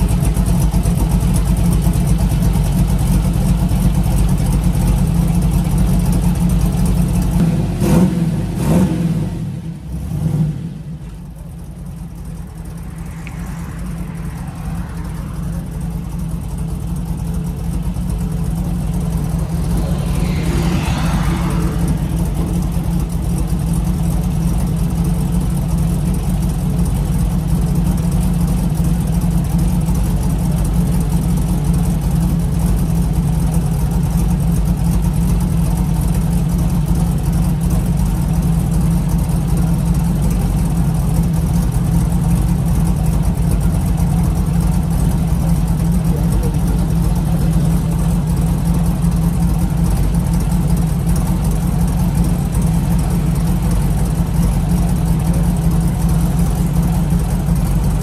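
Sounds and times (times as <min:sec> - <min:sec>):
car engine humming: 0:00.0 - 0:58.0
falling whoosh: 0:12.3 - 0:24.1.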